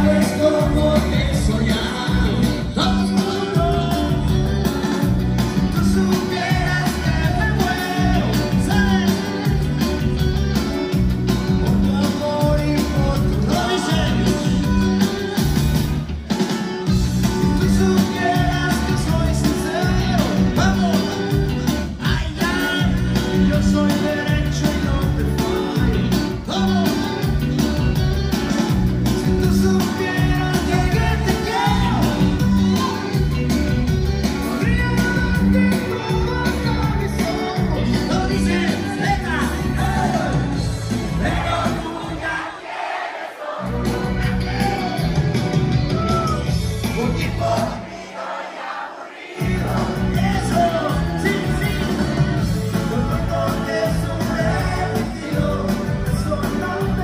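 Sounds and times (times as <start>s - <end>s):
loud dance music with singing: 0.0s - 57.0s
heavy bass beat: 49.4s - 57.0s.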